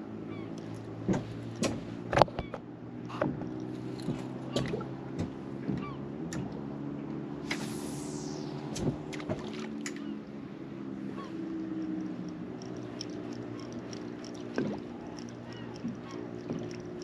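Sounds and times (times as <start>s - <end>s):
boat engine idling: 0.0s - 6.6s, 9.0s - 17.0s
fishing tackle clicking: 0.5s - 2.2s, 11.3s - 17.0s.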